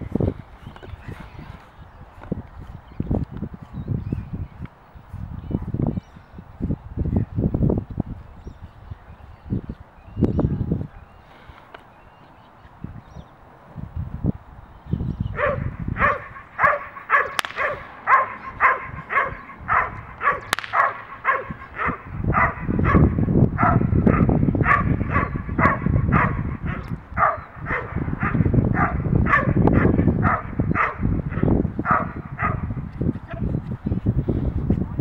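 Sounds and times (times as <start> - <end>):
dog barking: 15.4 - 32.7.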